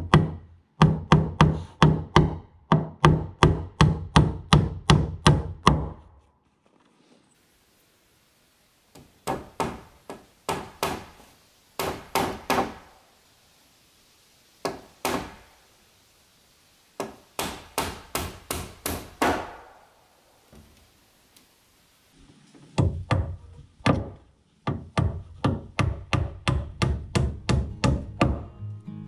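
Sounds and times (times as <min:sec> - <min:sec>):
hammer nailing wooden board: 0:00.0 - 0:06.0, 0:08.9 - 0:12.9, 0:14.6 - 0:15.5, 0:17.0 - 0:19.8, 0:22.8 - 0:28.4.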